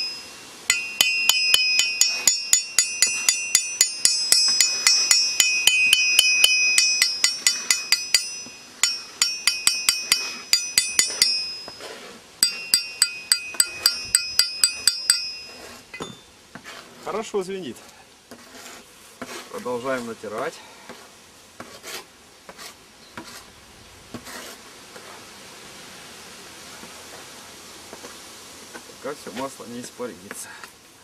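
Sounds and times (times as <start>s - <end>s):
hammer tapping on anvil: 0.0s - 11.8s, 12.4s - 16.2s
anvil ringing: 0.0s - 16.3s.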